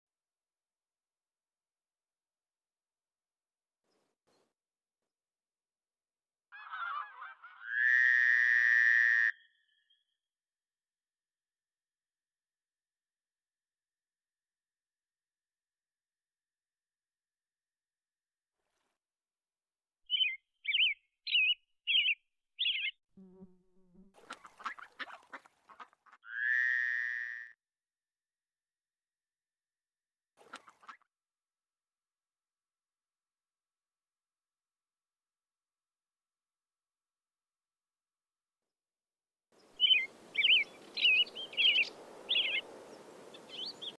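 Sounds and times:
bird chirping: 20.1s - 23.0s, 39.7s - 42.6s, 43.3s - 44.0s
soft outdoor hiss: 39.6s - 43.9s
songbird warbling: 39.8s - 42.6s.

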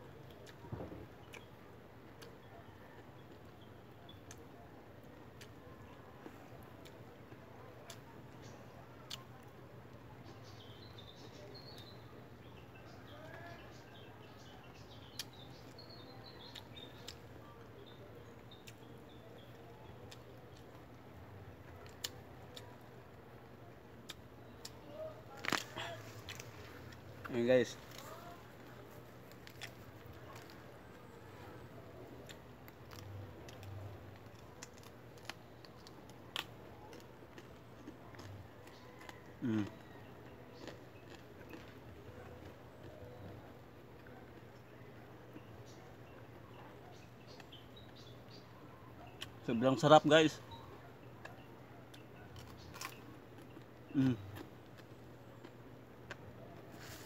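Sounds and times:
small birds chirping: 0.0s - 57.0s
person chewing crunchy fruit: 23.9s - 44.9s, 50.5s - 57.0s.

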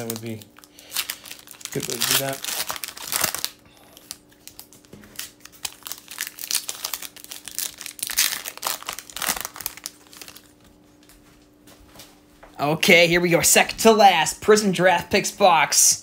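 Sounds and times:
foil wrappers crinkling: 0.0s - 11.1s.

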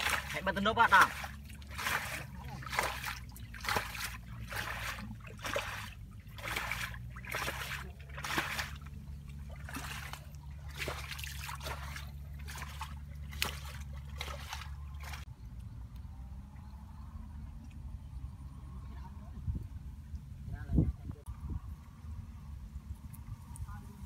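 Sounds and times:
hands splashing in muddy water: 0.0s - 15.3s.

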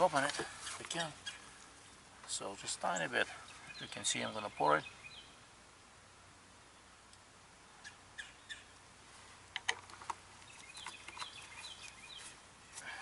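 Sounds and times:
bird chirps: 0.0s - 2.0s, 2.7s - 5.4s, 7.8s - 8.8s, 10.4s - 12.8s.

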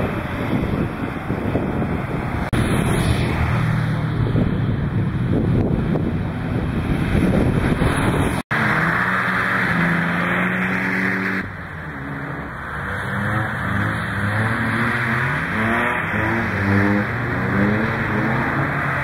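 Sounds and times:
wind noise rush: 0.0s - 8.4s
car engine revving: 0.0s - 19.0s.

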